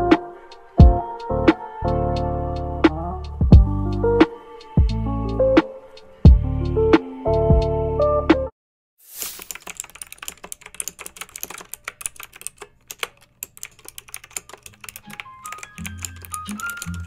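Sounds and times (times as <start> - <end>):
rapid irregular clicking: 9.3 - 17.0.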